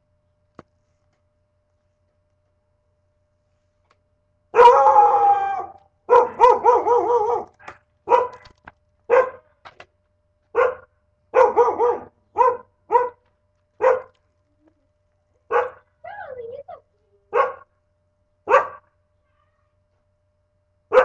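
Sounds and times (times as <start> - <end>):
dog barking: 4.6 - 4.9, 6.1 - 8.5, 9.1 - 9.5, 10.5 - 13.2, 13.8 - 14.2, 15.5 - 15.9, 17.3 - 17.7, 18.5 - 18.9.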